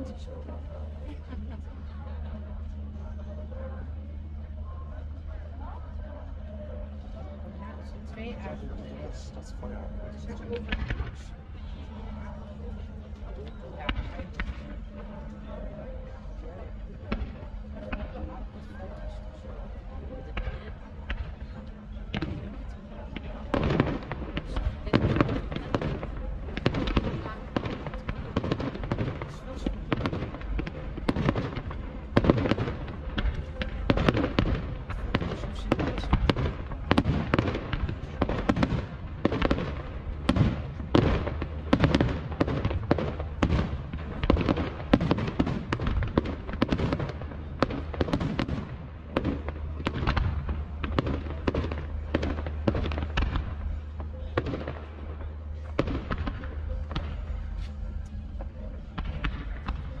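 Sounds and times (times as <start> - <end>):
low hum: 0.0 - 60.0
fireworks bangs and crackling: 10.2 - 11.6, 16.1 - 60.0.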